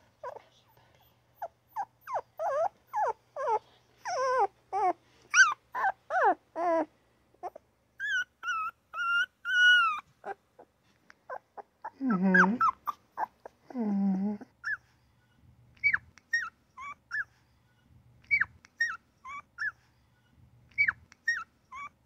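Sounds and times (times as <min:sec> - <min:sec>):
puppy whimpering yelps: 0:00.2 - 0:00.4, 0:01.4 - 0:10.7, 0:11.3 - 0:14.0, 0:14.6 - 0:15.0, 0:15.8 - 0:17.4, 0:18.3 - 0:19.9, 0:20.7 - 0:22.0
puppy high cries: 0:01.7 - 0:10.4, 0:20.8 - 0:22.0.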